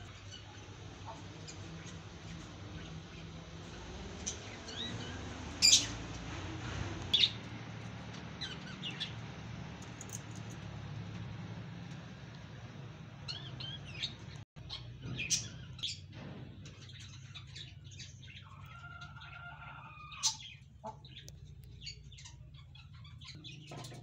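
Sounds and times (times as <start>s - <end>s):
parrots chirping: 4.2s - 6.0s.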